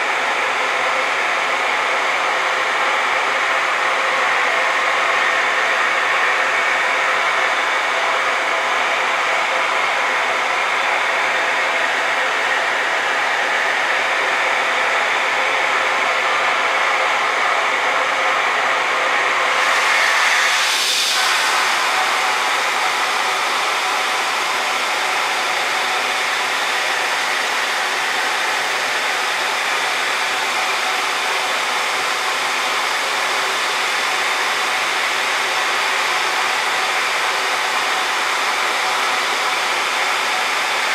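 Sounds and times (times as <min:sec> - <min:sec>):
ventilation blower rushing: 0:00.0 - 0:40.9
high hiss: 0:19.5 - 0:29.5.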